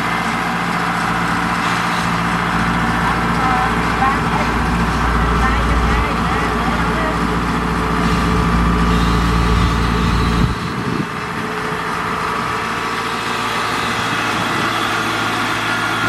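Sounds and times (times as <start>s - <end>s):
diesel engine running: 0.0s - 16.0s
deep low rumble: 2.9s - 11.4s.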